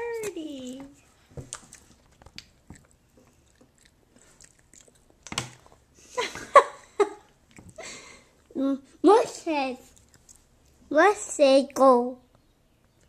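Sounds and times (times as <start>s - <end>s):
baby mouth-smacking eating: 1.4s - 5.8s.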